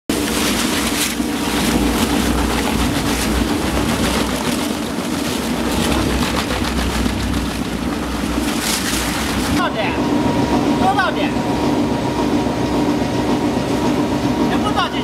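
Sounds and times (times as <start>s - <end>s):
crackle of plastic bags tearing: 0.1s - 9.6s
shredder motor drone: 0.1s - 15.0s.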